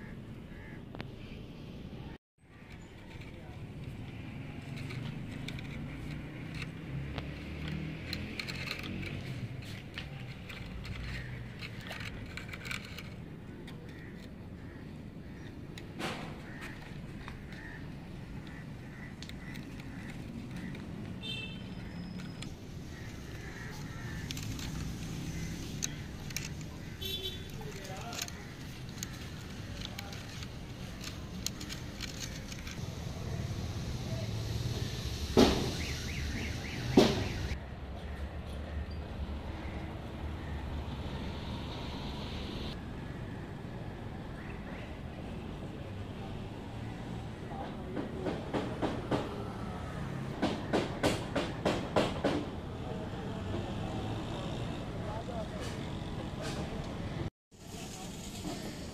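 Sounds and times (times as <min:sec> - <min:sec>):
toy bus wheels rolling on concrete: 0:02.6 - 0:14.6, 0:15.3 - 0:37.6, 0:53.4 - 0:58.9.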